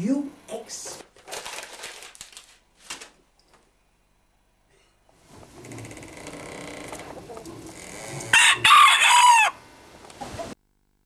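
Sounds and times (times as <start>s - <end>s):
hens clucking: 5.5s - 10.6s
rooster crowing: 8.0s - 9.7s.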